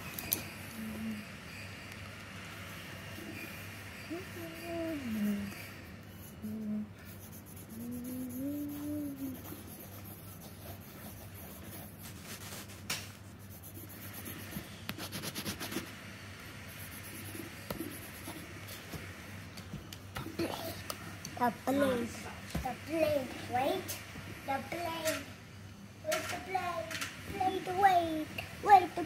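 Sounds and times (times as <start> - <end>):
person humming: 0.7 - 1.3, 4.1 - 5.6, 6.3 - 9.8
pencil scribbling on paper: 3.2 - 15.9, 16.7 - 18.9.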